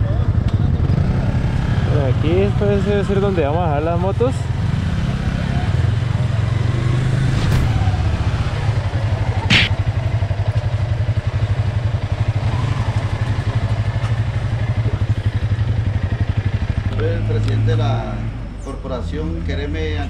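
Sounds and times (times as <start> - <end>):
motorcycle engine idling: 9.0 - 17.4
sharp click: 9.5 - 9.8.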